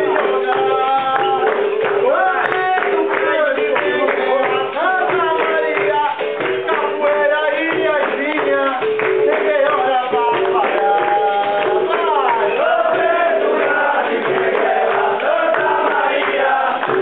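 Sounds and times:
percussion: 0.0s - 17.0s
rhythmic hand-clapping: 0.0s - 17.0s
group singing: 3.8s - 17.0s.

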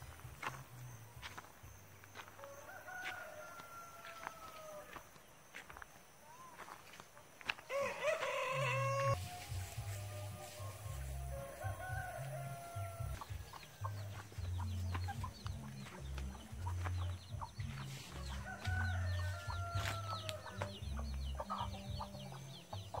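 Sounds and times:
background music with bass: 0.0s - 2.4s, 8.7s - 23.0s
chickens clucking: 6.6s - 23.0s
small birds chirping: 8.8s - 23.0s.

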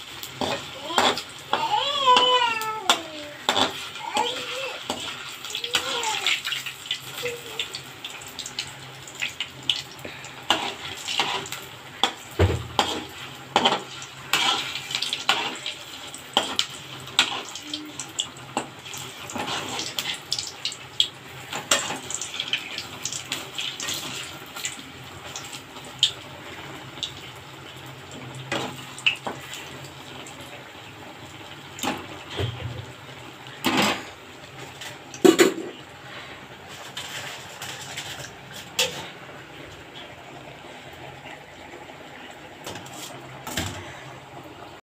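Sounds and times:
oil sizzling and crackling: 0.0s - 44.8s
metal spatula scraping a pan: 3.4s - 5.1s, 10.5s - 15.7s, 19.3s - 20.1s, 36.7s - 39.2s.

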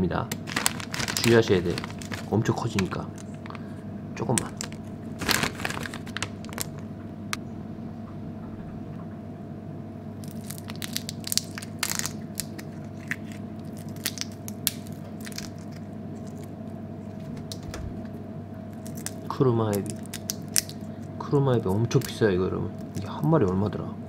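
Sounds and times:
steady background hum: 0.0s - 24.0s
prawn shell crackling: 0.4s - 3.7s, 4.3s - 6.9s, 10.2s - 16.6s, 18.7s - 23.3s.

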